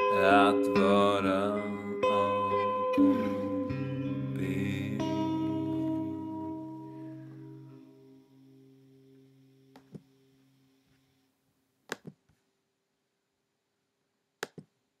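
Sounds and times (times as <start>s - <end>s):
electric guitar chord ringing: 0.0s - 10.4s.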